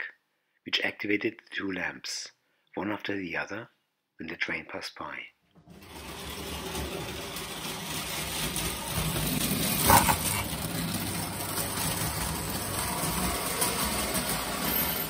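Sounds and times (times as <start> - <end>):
toy train running on track: 5.7 - 15.0.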